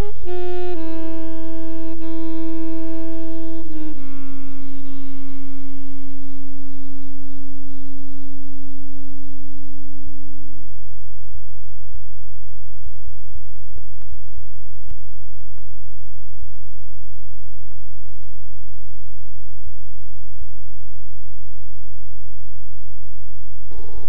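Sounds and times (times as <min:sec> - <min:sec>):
clicks and crackles: 0:12.7 - 0:19.2.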